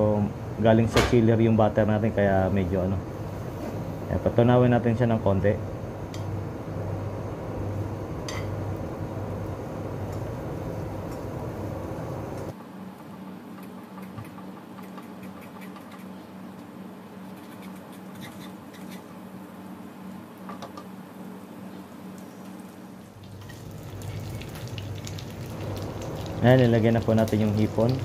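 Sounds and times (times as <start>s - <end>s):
low hum: 5.4s - 17.2s
butter sizzling and popping: 23.2s - 28.0s.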